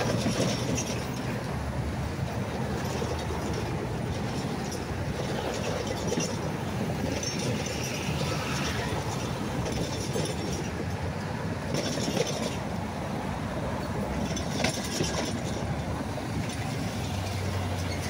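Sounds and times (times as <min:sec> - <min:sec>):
wheel squeals and clinks: 0:00.0 - 0:01.4, 0:02.8 - 0:11.0, 0:14.2 - 0:18.0
train wheels rumbling on rail: 0:00.0 - 0:18.0.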